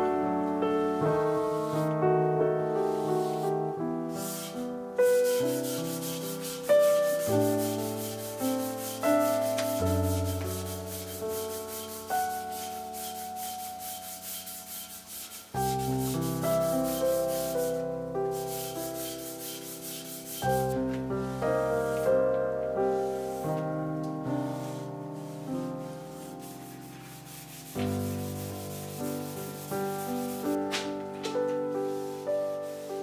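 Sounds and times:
soft piano music: 0:00.0 - 0:33.0
rag rubbing over metal rim: 0:04.1 - 0:17.8, 0:18.4 - 0:20.8, 0:24.7 - 0:30.6.

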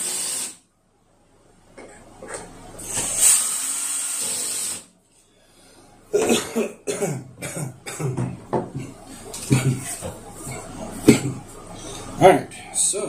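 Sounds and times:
man coughing: 0:06.1 - 0:11.5.

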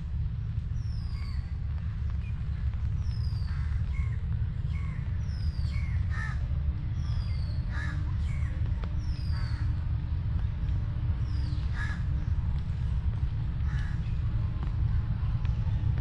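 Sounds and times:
steady low rumble: 0:00.0 - 0:16.0
crows cawing: 0:06.0 - 0:06.5, 0:07.7 - 0:08.1, 0:11.7 - 0:12.1, 0:13.6 - 0:14.1.

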